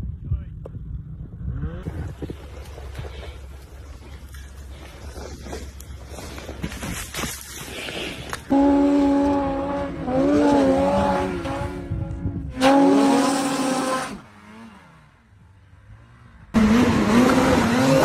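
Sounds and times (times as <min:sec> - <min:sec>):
snowmobile engine revving: 0:08.4 - 0:18.0.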